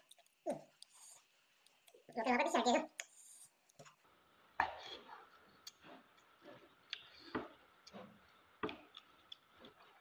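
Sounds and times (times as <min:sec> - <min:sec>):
man chewing with lip smacks: 0:00.0 - 0:02.0, 0:05.6 - 0:10.0.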